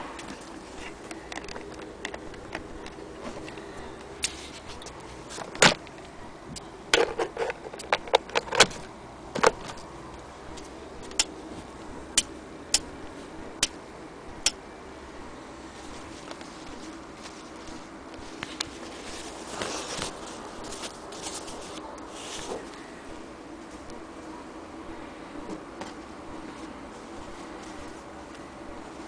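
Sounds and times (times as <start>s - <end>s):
faint steady hum: 0.0s - 29.0s
hard objects clicking and knocking: 0.2s - 3.6s, 4.2s - 9.8s.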